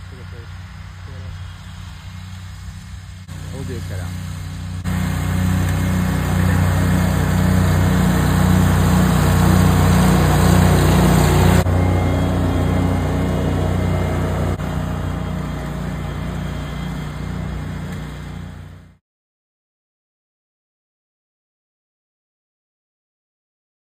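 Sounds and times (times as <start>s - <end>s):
mower engine droning: 0.0s - 19.0s.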